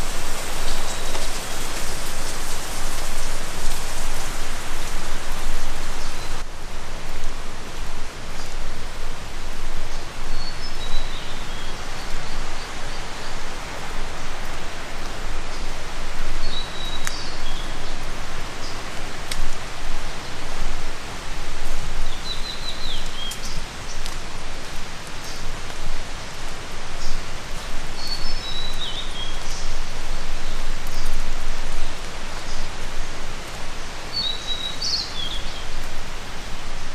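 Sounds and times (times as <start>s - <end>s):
water hissing: 0.0s - 6.4s.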